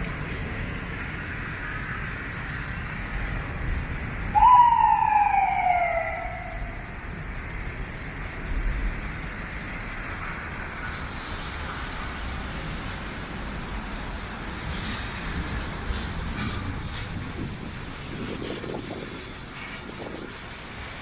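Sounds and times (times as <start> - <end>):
distant city traffic: 0.0 - 21.0
rain hiss: 0.0 - 21.0
low rumble: 3.1 - 8.0
tone sliding down in pitch: 4.4 - 6.8.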